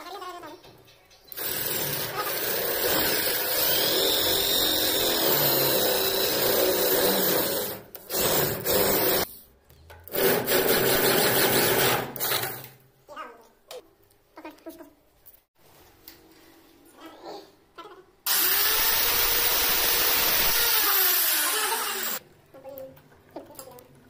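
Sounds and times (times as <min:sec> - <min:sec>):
electric drill cutting wood: 0:01.3 - 0:09.3, 0:18.3 - 0:22.2.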